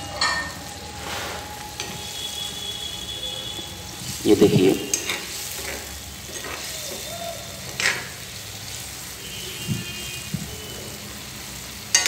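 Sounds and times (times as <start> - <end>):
fish sizzling in oil: 0.0 - 12.0
spatula clatter: 4.3 - 7.1, 7.7 - 8.2.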